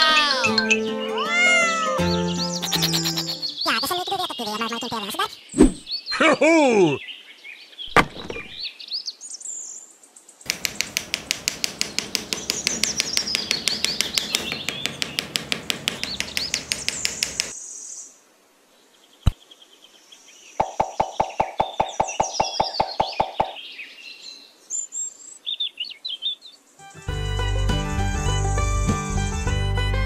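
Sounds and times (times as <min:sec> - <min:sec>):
birds chirping: 0:02.0 - 0:18.1, 0:18.8 - 0:26.7
wobbling cartoonish voice: 0:02.6 - 0:05.5
rapid sharp taps: 0:10.5 - 0:17.6, 0:20.6 - 0:23.6.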